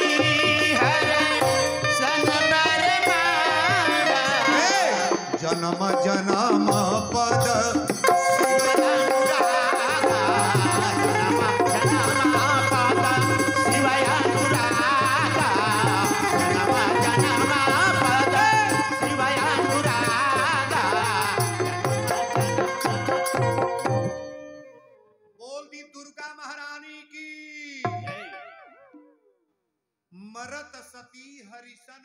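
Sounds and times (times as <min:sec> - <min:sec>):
man singing: 0:00.0 - 0:22.7, 0:25.4 - 0:28.2
hand percussion: 0:00.0 - 0:24.7.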